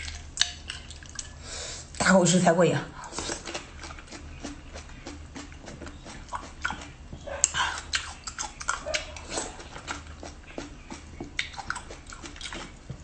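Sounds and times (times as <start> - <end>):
snails being chewed: 3.0 - 13.0.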